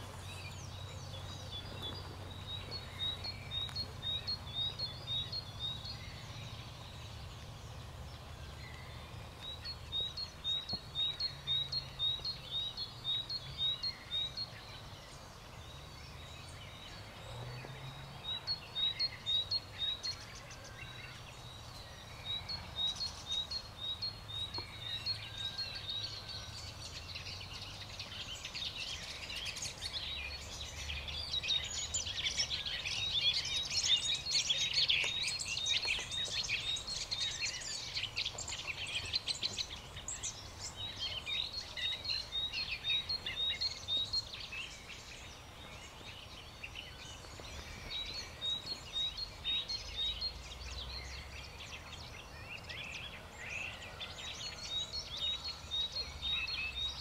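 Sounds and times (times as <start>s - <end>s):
birds chirping and singing: 0.0s - 57.0s.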